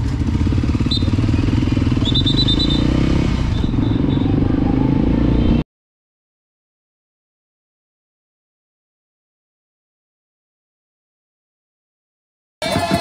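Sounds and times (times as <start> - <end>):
motorcycle engine running: 0.0 - 5.6, 12.6 - 13.0.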